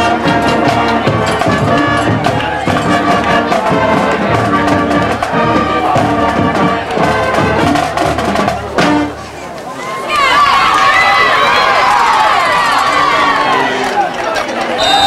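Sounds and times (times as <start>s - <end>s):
brass band playing: 0.0s - 9.6s.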